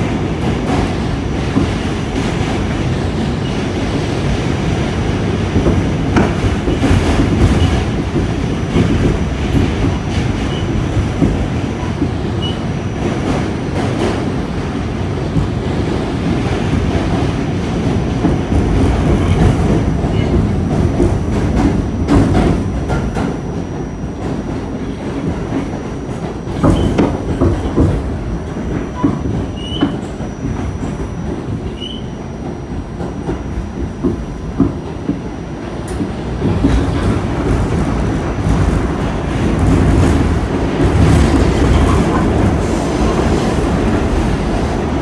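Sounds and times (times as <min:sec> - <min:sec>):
subway car rumbling: 0:00.0 - 0:45.0
wheel squeals: 0:31.8 - 0:32.1.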